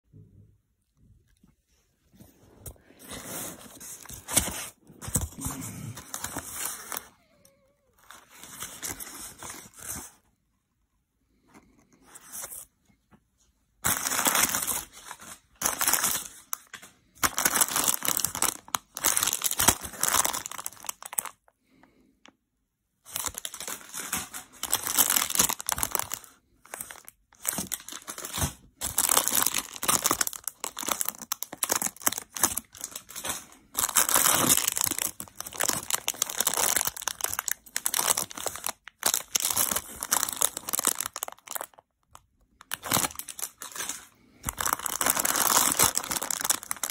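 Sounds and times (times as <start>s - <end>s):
paper and plastic bags crinkling: 2.7s - 7.2s, 13.8s - 21.5s, 23.0s - 46.9s.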